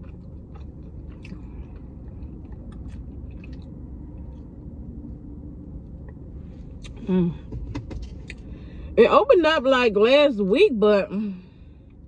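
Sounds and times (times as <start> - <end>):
low rumble inside car: 0.0 - 12.0.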